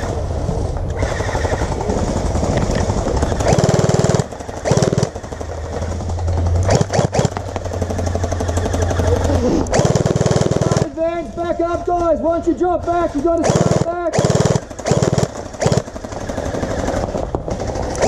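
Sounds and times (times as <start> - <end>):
gel blasters firing in bursts: 1.0 - 5.5, 6.6 - 11.0, 13.2 - 17.0.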